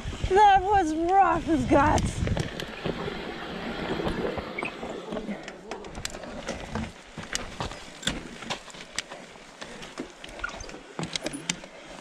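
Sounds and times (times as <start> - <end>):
bike clicks and knocks: 5.5 - 11.7.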